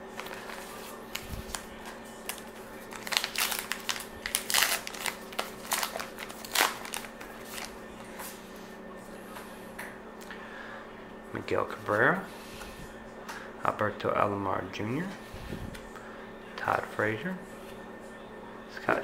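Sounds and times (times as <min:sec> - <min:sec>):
wrapper tearing and crinkling: 0:00.1 - 0:07.8.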